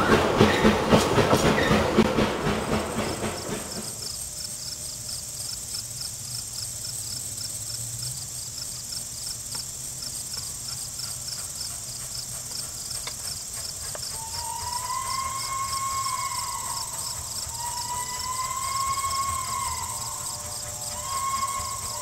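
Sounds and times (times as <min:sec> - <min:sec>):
steam locomotive whistle: 0:00.0 - 0:03.9, 0:14.1 - 0:22.0
insects buzzing chorus: 0:00.0 - 0:22.0.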